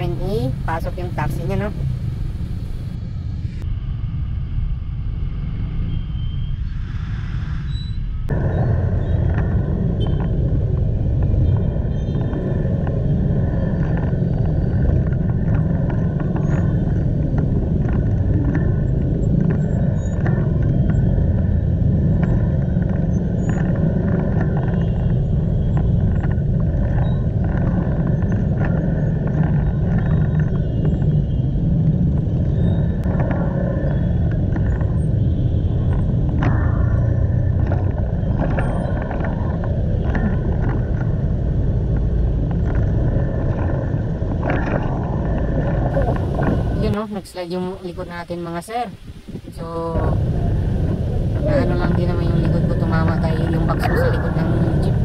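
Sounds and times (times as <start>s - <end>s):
road traffic: 0.0s - 3.6s
motor scooter rumble: 33.1s - 47.0s, 50.0s - 55.0s.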